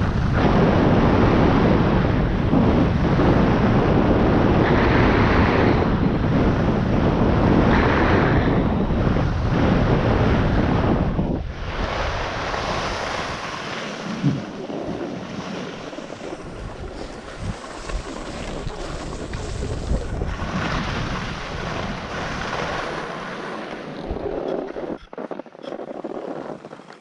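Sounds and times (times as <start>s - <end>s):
wind on microphone: 0.0s - 27.0s
skis carving on snow: 14.6s - 27.0s.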